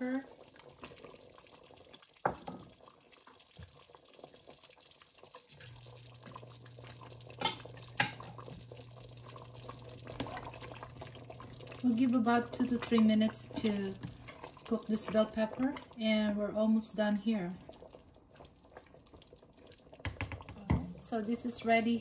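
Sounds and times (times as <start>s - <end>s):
curry bubbling in a pot: 0.0s - 22.0s
low steady hum: 5.6s - 18.7s.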